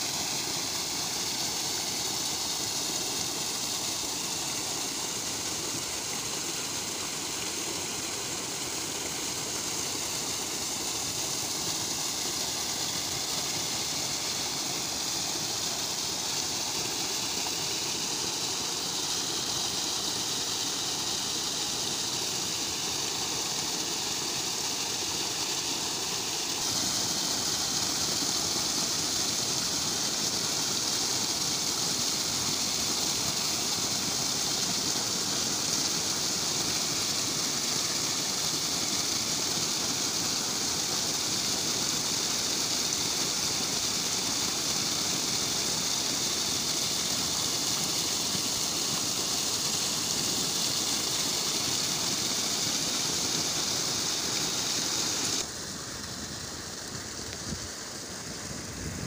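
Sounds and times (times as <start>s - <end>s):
water pouring and splashing: 0.0s - 59.0s.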